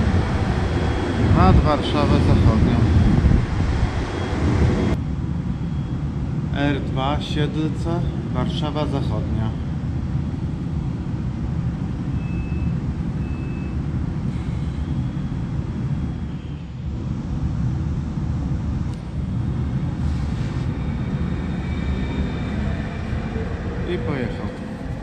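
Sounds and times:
electric train rumble: 0.0s - 25.0s
faint high whine: 4.0s - 9.6s, 12.0s - 25.0s
short beeps: 12.1s - 13.8s.

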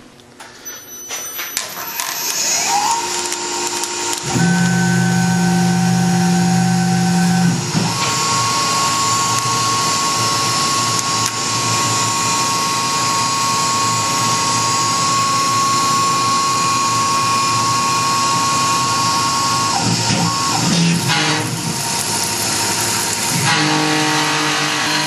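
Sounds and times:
mill spindle high whine: 0.0s - 25.0s
tool cutting metal plate: 1.5s - 25.0s
coolant spray: 21.1s - 24.9s.

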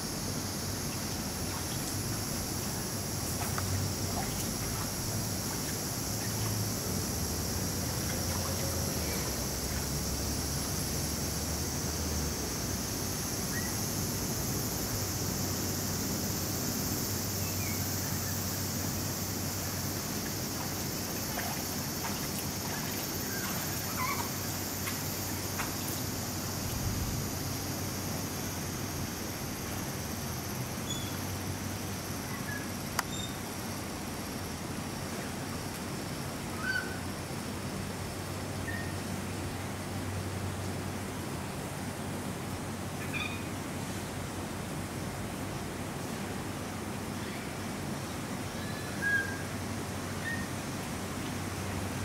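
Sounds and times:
high-pitched hiss: 0.0s - 34.5s.

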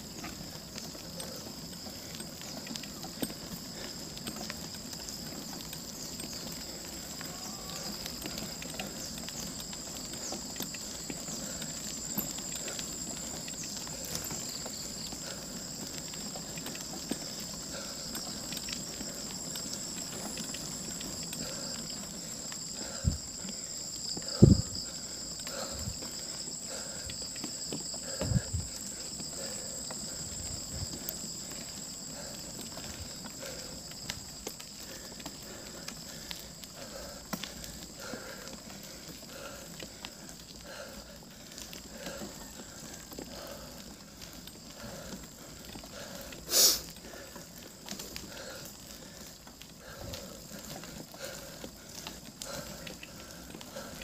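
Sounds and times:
high-pitched insect drone: 0.2s - 34.6s.

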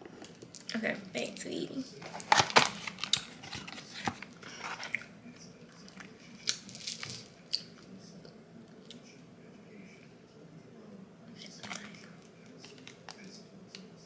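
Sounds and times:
paper food container crackling: 2.0s - 5.0s.

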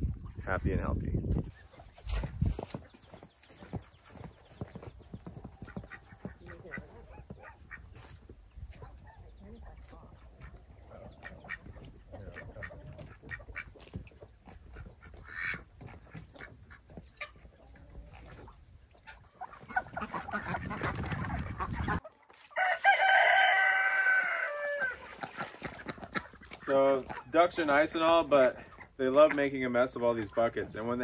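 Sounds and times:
chickens and ducks calling: 1.5s - 31.0s
rooster crowing: 22.6s - 25.0s.

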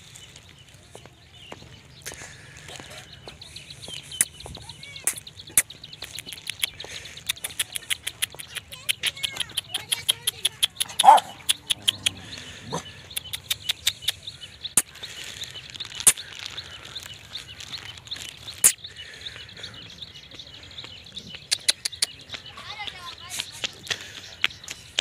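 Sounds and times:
sharp clicks: 5.0s - 12.2s, 13.2s - 14.2s.

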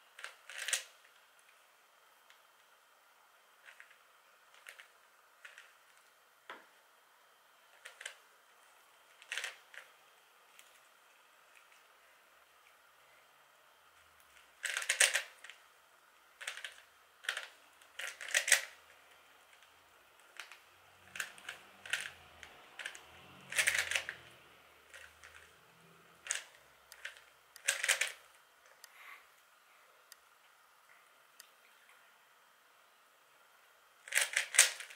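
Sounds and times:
puzzle cube plastic clicking: 0.2s - 0.9s, 9.2s - 9.9s, 14.6s - 15.6s, 16.4s - 18.8s, 19.5s - 24.2s, 26.2s - 28.9s, 34.1s - 34.9s.

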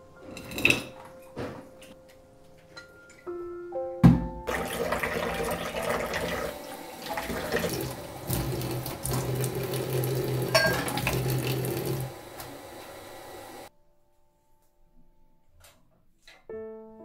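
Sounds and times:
tap running into steel sink: 7.2s - 12.5s.

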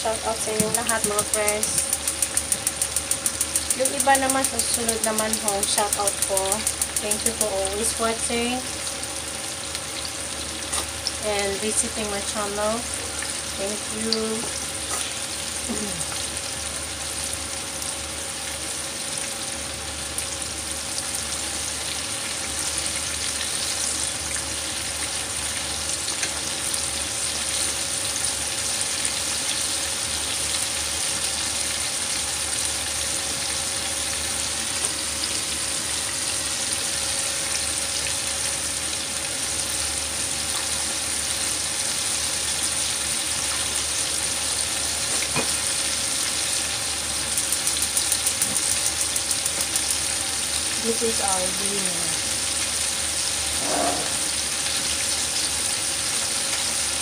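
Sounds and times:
chicken deep-frying in oil: 0.0s - 57.0s
chopsticks turning food in oil: 0.1s - 8.7s, 47.2s - 50.0s.

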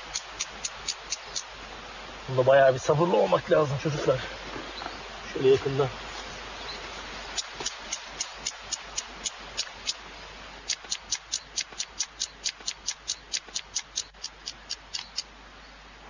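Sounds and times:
flint striking clicks: 0.1s - 1.5s, 7.4s - 10.0s, 10.7s - 15.3s.

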